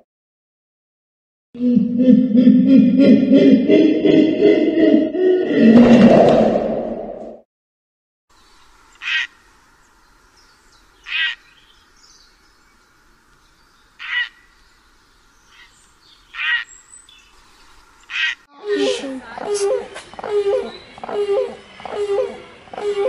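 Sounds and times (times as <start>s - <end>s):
heron calls: 11.0s - 11.4s, 14.0s - 14.4s, 16.3s - 16.7s, 18.1s - 23.0s.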